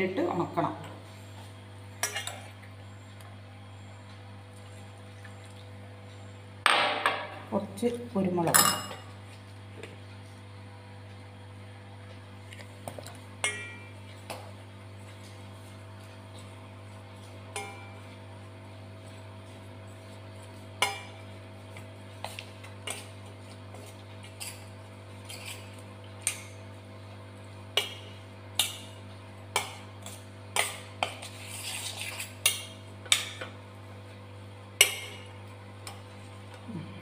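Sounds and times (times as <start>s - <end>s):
metal spoon scraping steel bowl: 30.0s - 32.6s.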